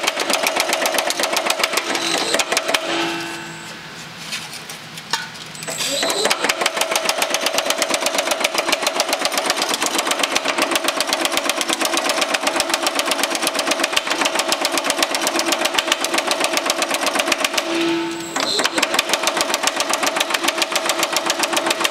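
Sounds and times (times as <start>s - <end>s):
power hammer striking sheet metal: 0.0s - 4.0s, 6.0s - 21.9s.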